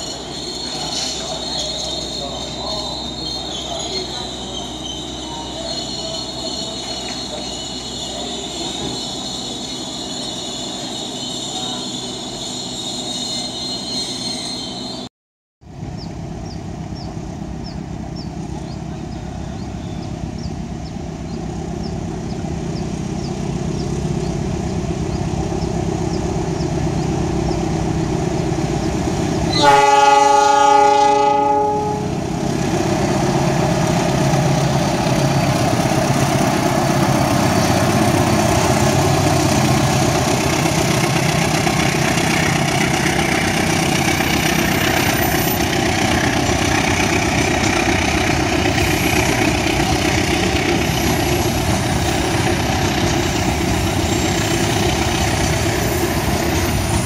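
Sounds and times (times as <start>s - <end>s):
train wheels squealing: 0.0s - 15.1s, 35.0s - 57.0s
diesel locomotive hauling freight: 0.0s - 57.0s
locomotive horn chord: 29.5s - 32.2s.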